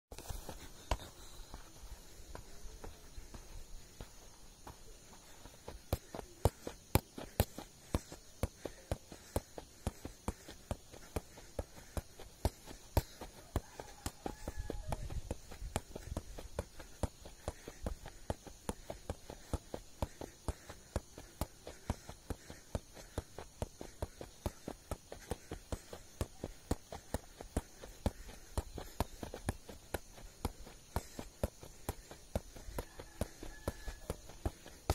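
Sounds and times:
football taps off foot: 0:00.2 - 0:01.1, 0:02.3 - 0:34.9.

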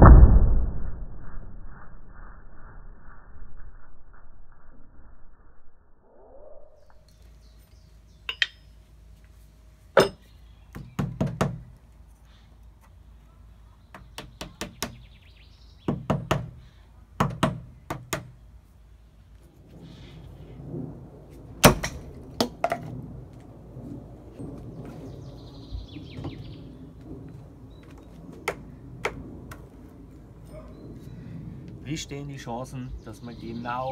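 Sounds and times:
axes striking wooden target: 0:10.0 - 0:10.2, 0:21.6 - 0:22.9
low rustle: 0:19.1 - 0:32.0.

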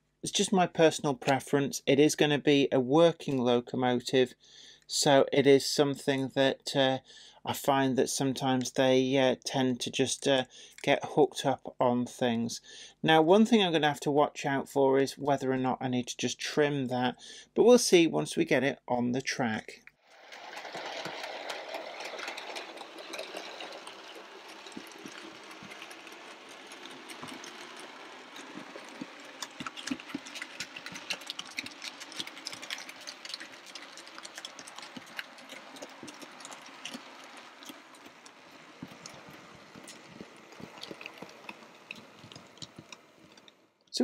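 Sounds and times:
wheels clicking over rails: 0:20.1 - 0:43.6
model train motor whirr: 0:20.1 - 0:43.7.

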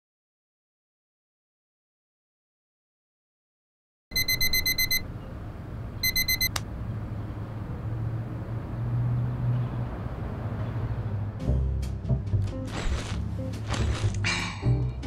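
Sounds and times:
phone alarm beeping: 0:04.1 - 0:05.0, 0:06.0 - 0:06.6.

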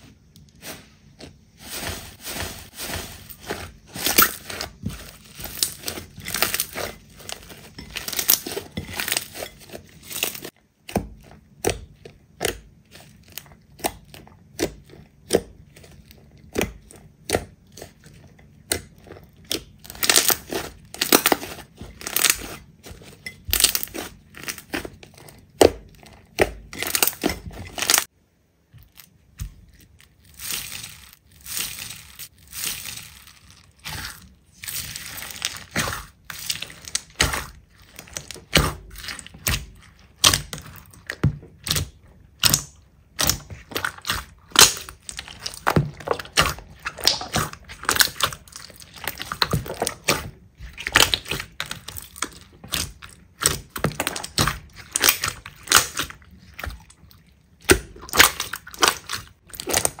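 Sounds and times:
slime popping and crackling: 0:01.6 - 0:10.6, 0:18.6 - 0:22.6, 0:23.4 - 0:28.1, 0:28.8 - 1:00.0.

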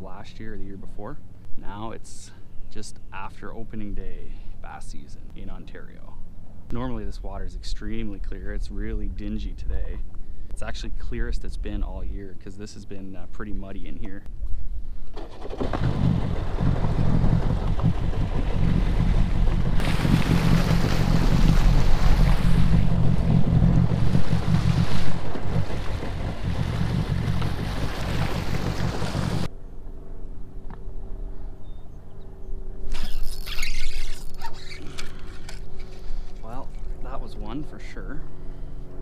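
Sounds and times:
wind buffeting microphone: 0:14.4 - 0:29.5
watercraft engine and jet noise: 0:14.9 - 0:39.0.

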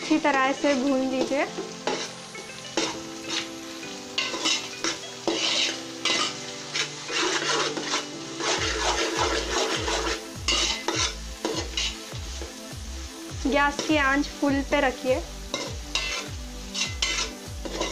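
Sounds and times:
vegetables sizzling: 0:00.0 - 0:17.9
spoon scraping a metal pot: 0:00.7 - 0:02.2, 0:02.8 - 0:03.5, 0:04.2 - 0:12.0, 0:15.5 - 0:17.9
music with thudding beat: 0:08.6 - 0:14.6, 0:15.5 - 0:17.9.

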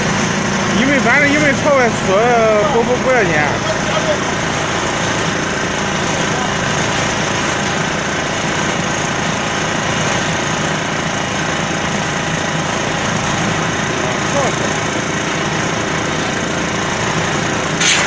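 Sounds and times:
concrete mixer diesel engine running: 0:00.0 - 0:18.0.

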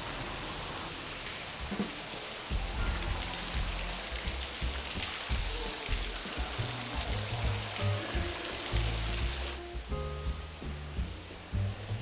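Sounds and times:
fountain water splashing: 0:00.0 - 0:09.6
background music with deep bass: 0:02.5 - 0:12.0.

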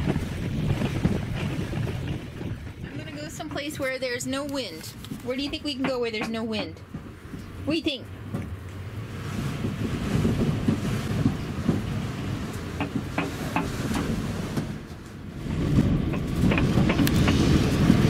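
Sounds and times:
gusty wind buffeting motorhome: 0:00.0 - 0:18.0
clicks and rattles: 0:15.8 - 0:18.0.

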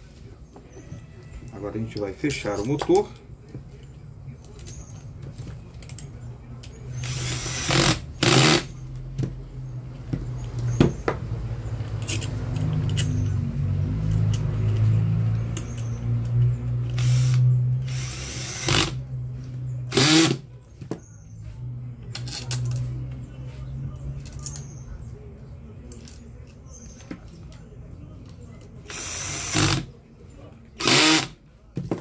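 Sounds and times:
cordless drill driving screws: 0:07.0 - 0:08.7, 0:16.9 - 0:19.0, 0:19.9 - 0:20.4, 0:28.9 - 0:29.9, 0:30.8 - 0:31.3.

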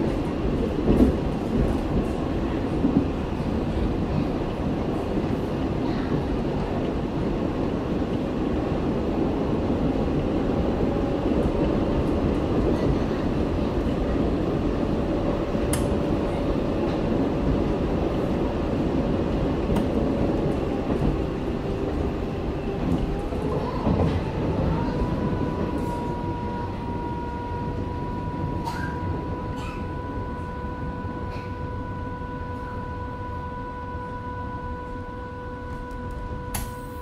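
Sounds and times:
electrical whine from train: 0:00.0 - 0:37.0
train rail rumble: 0:00.0 - 0:37.0.

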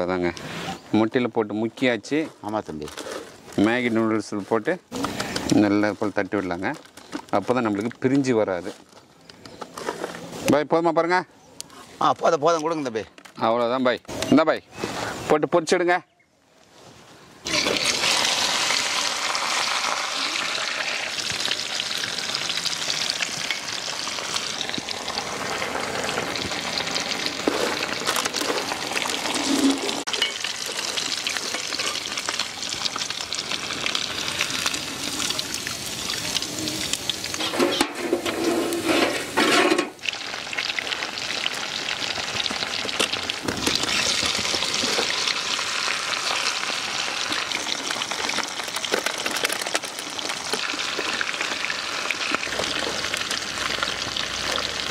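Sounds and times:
fish deep-frying in oil: 0:17.5 - 0:54.9
ladle stirring oil: 0:21.2 - 0:33.3, 0:36.3 - 0:41.0.

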